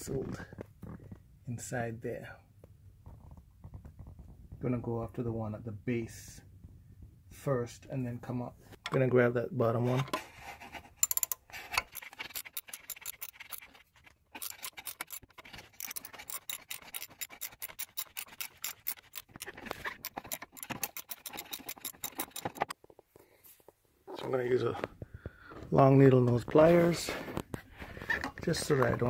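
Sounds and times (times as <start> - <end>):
ratchet clicking: 11.0 - 13.8, 14.4 - 22.7.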